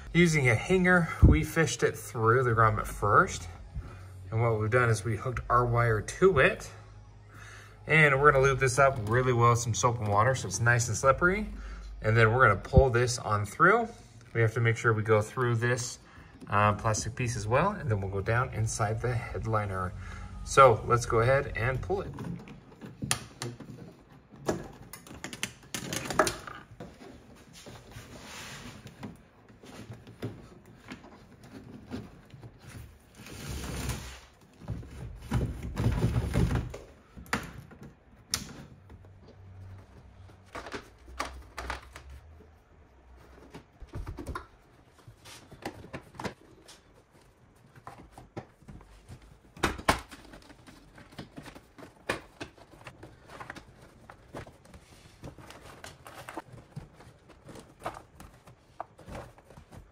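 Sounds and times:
rubber rubbing and rustling: 20.5s - 37.1s, 37.7s - 59.9s.

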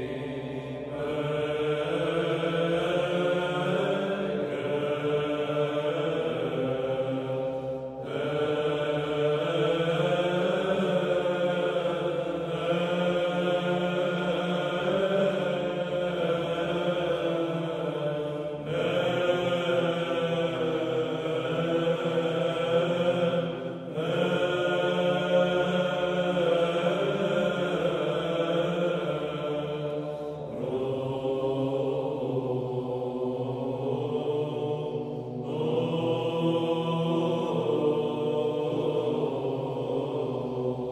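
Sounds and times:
slow vocal chant: 0.0s - 40.9s.

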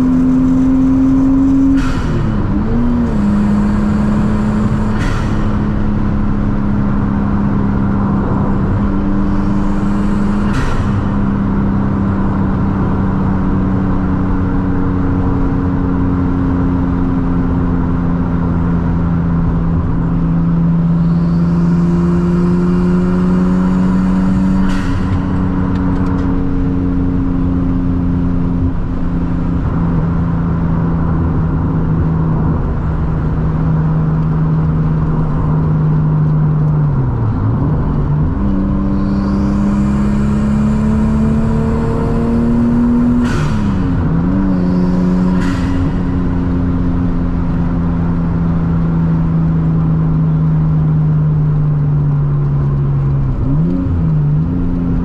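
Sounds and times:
car engine pulling: 0.0s - 55.0s.

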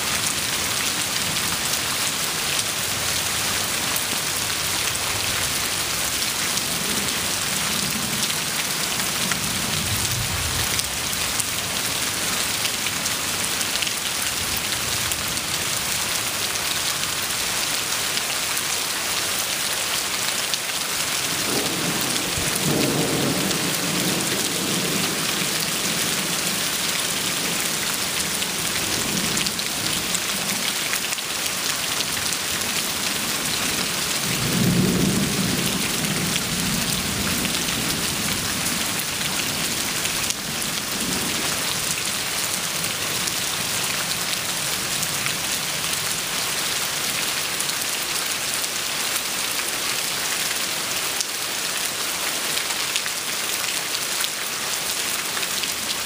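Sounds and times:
heavy rain: 0.0s - 56.0s
rolling thunder: 21.3s - 26.6s.

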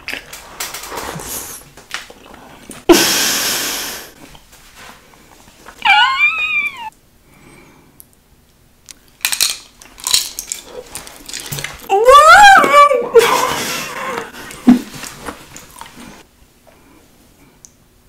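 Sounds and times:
meow-like call: 5.8s - 6.9s.

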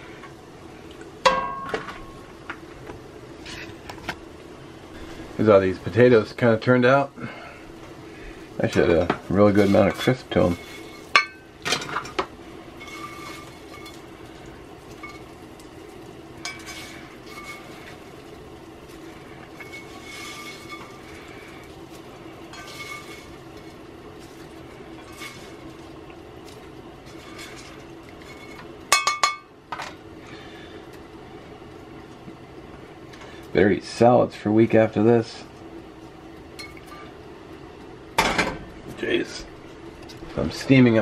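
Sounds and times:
steady low hum: 0.0s - 41.0s
spatula scraping skillet: 3.4s - 3.9s, 7.2s - 28.8s.

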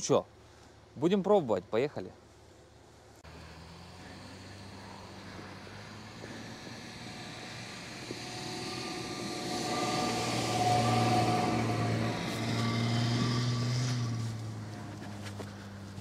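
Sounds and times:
car engine under throttle: 3.2s - 16.0s.

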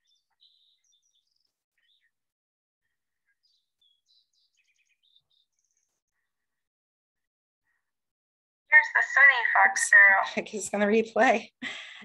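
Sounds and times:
recorded sparrow song: 0.0s - 8.1s.

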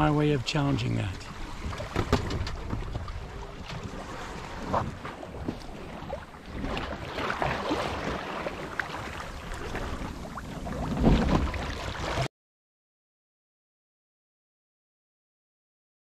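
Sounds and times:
water splashing along boat hull: 0.0s - 12.3s.

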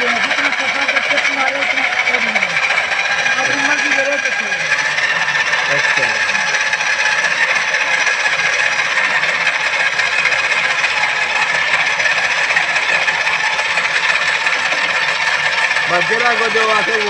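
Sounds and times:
abrasive scraping metal bore: 0.0s - 17.0s
drill driving a hone: 0.0s - 17.0s.

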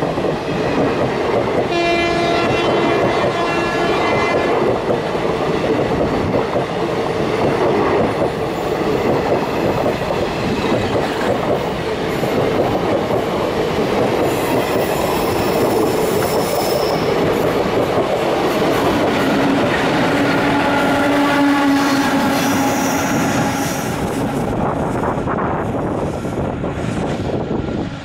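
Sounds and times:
train rumbling past: 0.0s - 28.0s
high wheel squeal: 14.8s - 17.2s.

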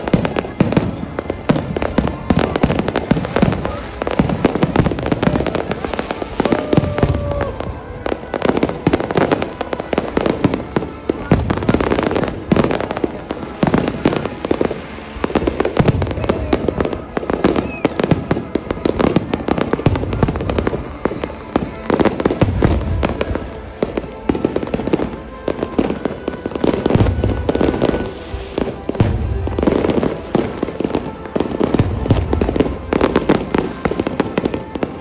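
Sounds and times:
fireworks bangs and crackles: 0.0s - 35.0s
falling whistle: 17.5s - 18.1s.

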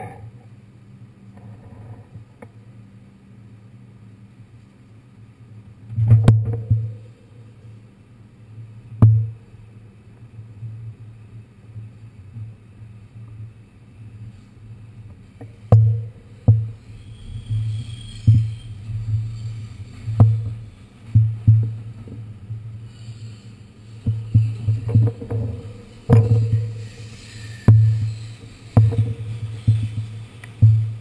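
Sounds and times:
subway car rumbling: 11.9s - 31.0s.

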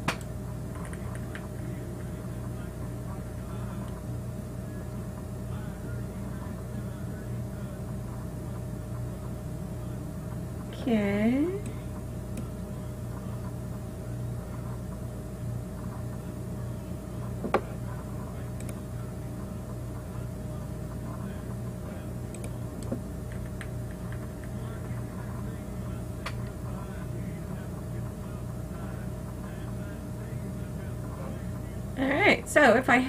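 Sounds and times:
low electrical hum: 0.0s - 33.0s
sharp clicks: 22.3s - 24.6s.

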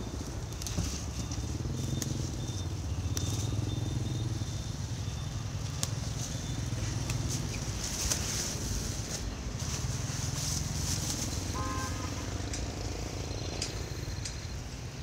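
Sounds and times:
engine running at low pitch: 0.0s - 15.0s
sharp clicks: 12.4s - 14.7s.

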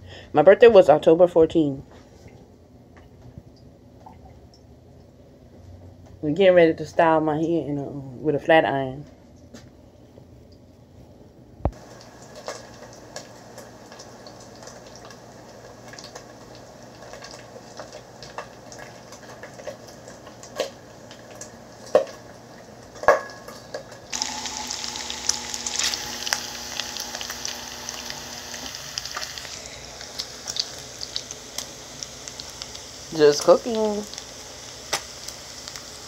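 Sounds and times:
bacon sizzling in a skillet: 11.7s - 36.0s.

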